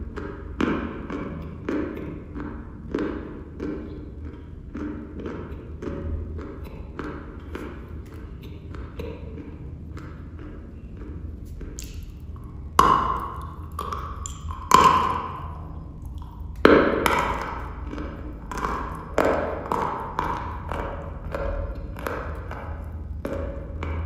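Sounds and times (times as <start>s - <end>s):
chewing crunches: 10.4s - 23.0s.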